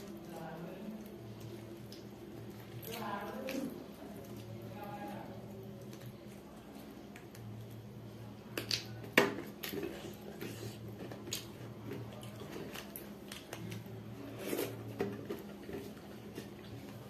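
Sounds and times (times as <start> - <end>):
person chewing: 8.6 - 17.0.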